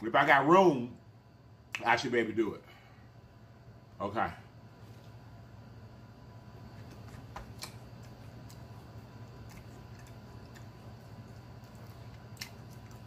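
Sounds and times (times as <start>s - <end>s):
steady low hum: 0.0s - 13.0s
wet mouth chewing clicks: 9.3s - 13.0s.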